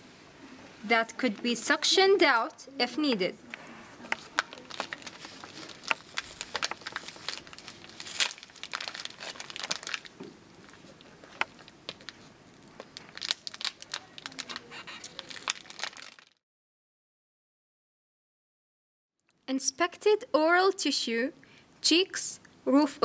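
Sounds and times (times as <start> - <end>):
plastic packaging crinkling: 3.5 - 16.4.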